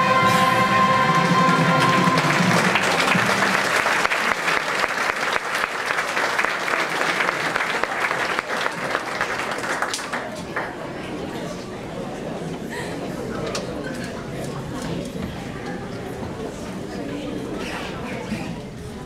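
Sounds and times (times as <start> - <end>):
held sung chord: 0.0 - 3.7
audience applauding: 0.0 - 10.9.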